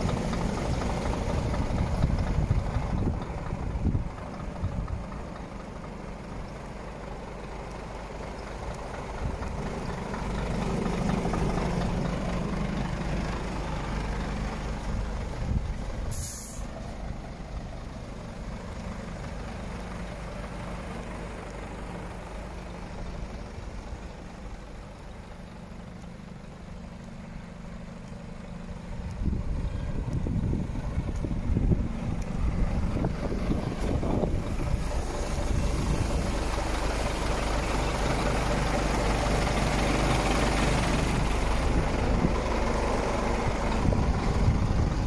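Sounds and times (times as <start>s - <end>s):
diesel truck engine idling: 0.0s - 45.0s
sharp hiss: 16.0s - 17.0s.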